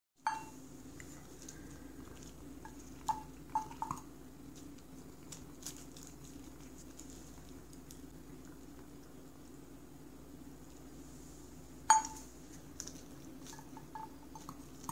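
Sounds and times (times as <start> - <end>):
metal spoon clinking on steel bowl: 0.2 - 0.6, 11.9 - 12.2, 13.5 - 14.9
steady low hum: 0.2 - 14.9.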